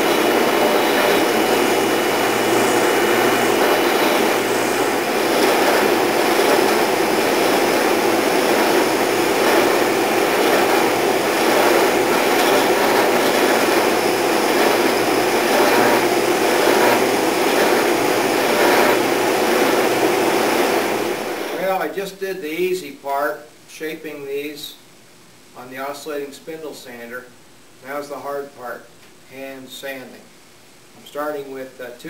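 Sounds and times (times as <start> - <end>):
spindle sander running: 0.0 - 21.6.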